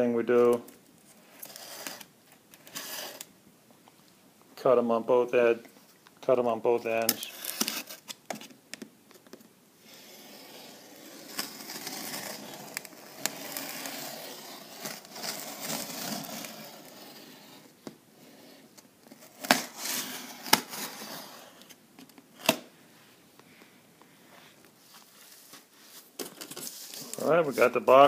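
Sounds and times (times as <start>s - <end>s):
blade cutting cardboard: 9.9s - 17.7s.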